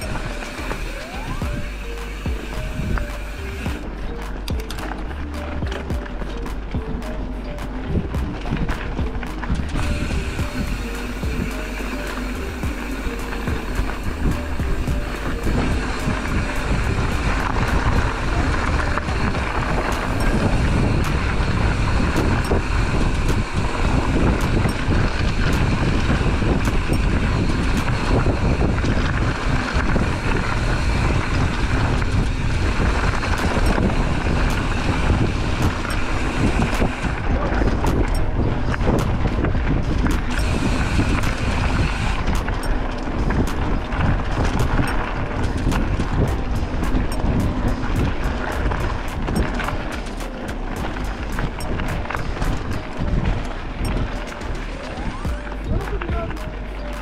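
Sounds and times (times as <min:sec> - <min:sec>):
bicycle rattling over rough ground: 0:00.0 - 0:57.0
wind buffeting microphone: 0:00.0 - 0:57.0.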